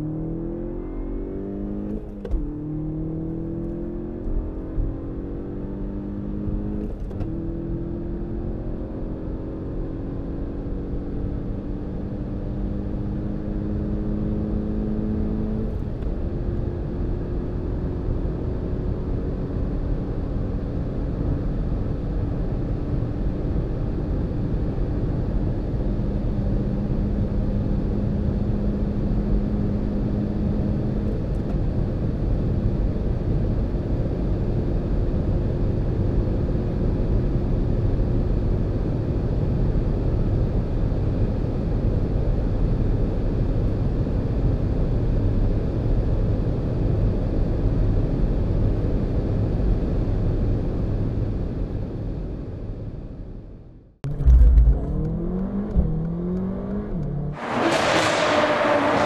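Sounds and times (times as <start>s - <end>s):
car engine drone: 0.0s - 11.5s, 54.0s - 59.0s
wind noise: 54.0s - 56.9s
road rumble: 54.0s - 59.0s.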